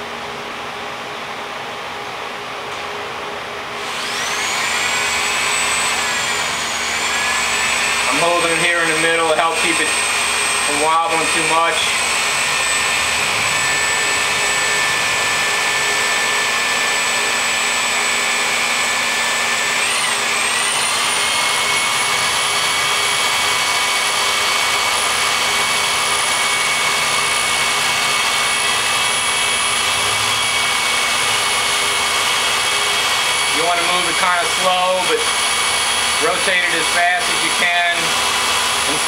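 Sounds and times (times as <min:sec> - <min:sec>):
electric drill whining: 0:03.8 - 0:39.0.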